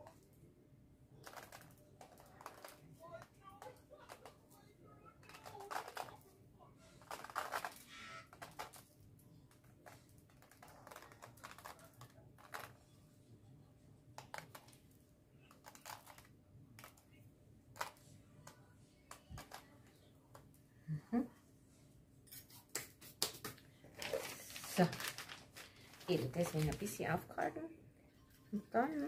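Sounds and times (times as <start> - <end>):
chocolate shavings ticking and rustling: 1.2 - 6.3, 7.0 - 12.8, 15.4 - 17.2, 24.0 - 27.0.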